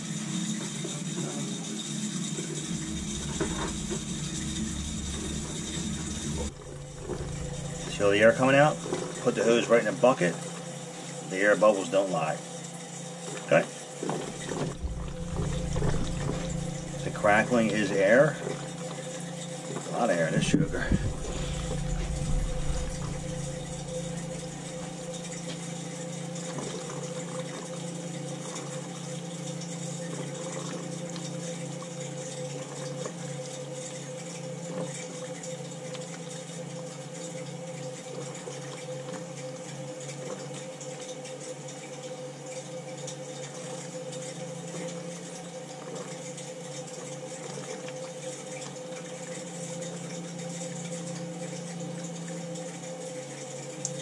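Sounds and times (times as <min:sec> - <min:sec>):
water pouring into bucket: 0:02.4 - 0:11.5, 0:14.3 - 0:25.4
steady hum: 0:02.5 - 0:10.9, 0:14.4 - 0:18.9, 0:20.1 - 0:25.6
air crackling and sputtering: 0:02.6 - 0:09.4, 0:14.4 - 0:18.8, 0:20.2 - 0:25.4.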